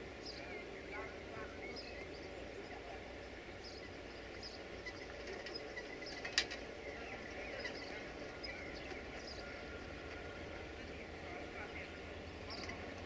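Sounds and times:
birds chirping: 0.0 - 13.0
faint low background hum: 0.0 - 13.0.

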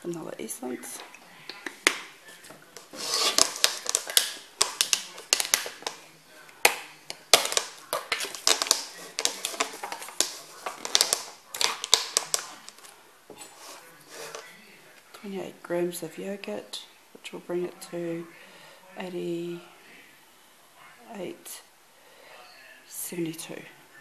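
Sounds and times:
kitchen containers clicking and rustling: 0.0 - 14.4.

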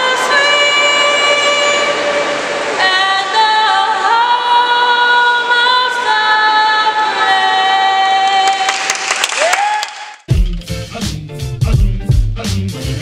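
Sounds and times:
group singing in harmony: 0.0 - 8.5.

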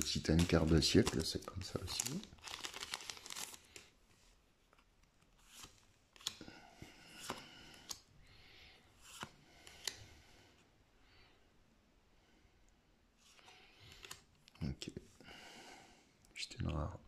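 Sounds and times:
trading cards rustling: 0.0 - 8.0, 13.2 - 14.5.

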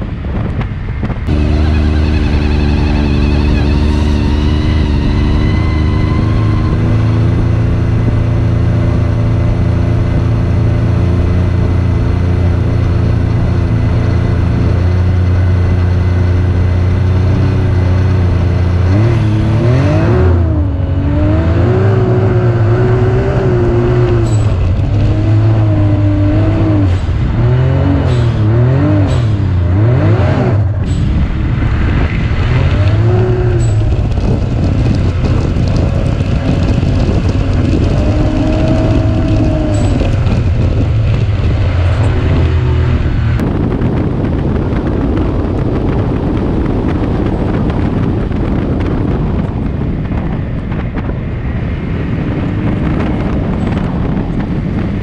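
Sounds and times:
quad bike engine revving: 1.2 - 49.2.

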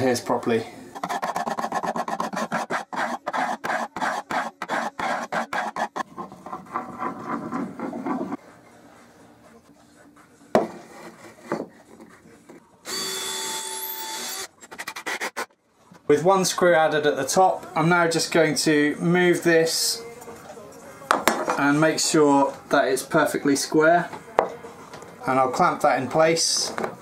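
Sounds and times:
scraper scraping a board: 1.0 - 8.4, 10.6 - 12.2, 14.7 - 15.5.

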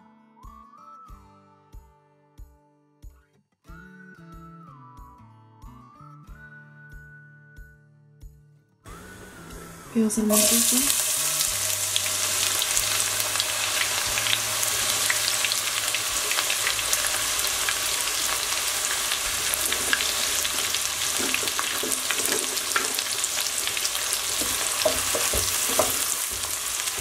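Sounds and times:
onions sizzling in hot oil: 8.9 - 27.0.

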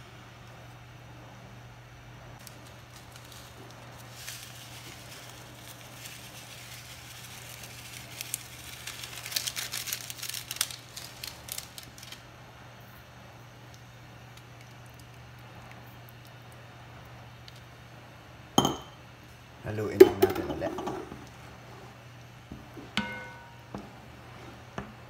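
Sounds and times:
stew simmering and crackling: 2.4 - 18.5, 20.5 - 25.0.

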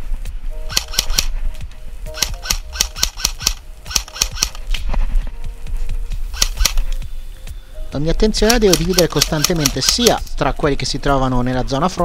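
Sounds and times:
airsoft gun shots: 2.2 - 4.6, 6.4 - 6.8, 8.5 - 10.2.

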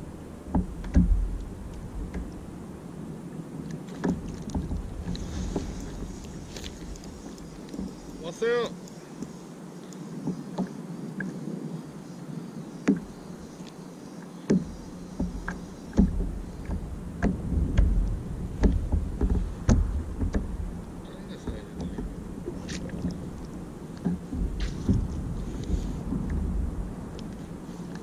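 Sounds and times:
low rumble: 0.0 - 8.2, 16.1 - 27.8
water slapping kayak hull: 0.0 - 9.4, 12.7 - 28.0
low water wash: 0.0 - 28.0.

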